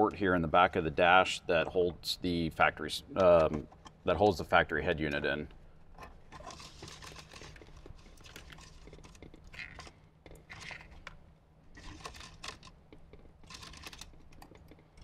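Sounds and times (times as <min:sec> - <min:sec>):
steady low hum: 0:00.0 - 0:15.0
rustling and clicking of cable: 0:05.0 - 0:11.2, 0:11.8 - 0:15.0.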